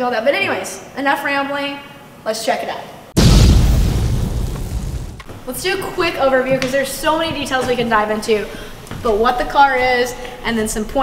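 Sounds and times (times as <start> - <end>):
deep boom impact: 3.2 - 5.3.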